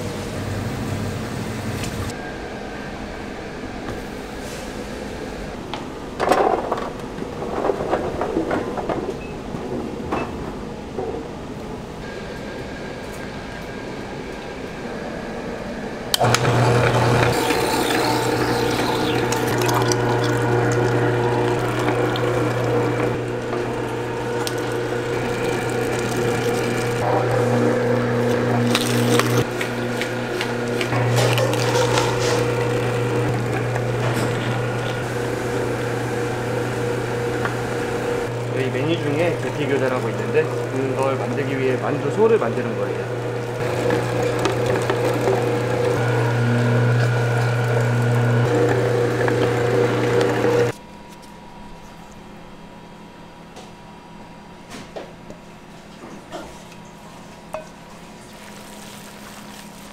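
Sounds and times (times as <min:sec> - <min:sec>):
low machine hum: 0:00.0 - 0:59.9
running water: 0:16.3 - 0:50.7, 0:57.6 - 0:59.9
kitchen clatter: 0:28.9 - 0:35.1.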